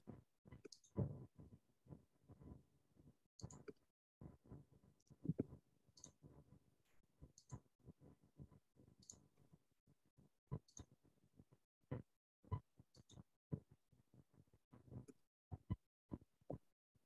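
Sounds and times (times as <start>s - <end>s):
faint clicking and tapping: 3.4s - 9.5s.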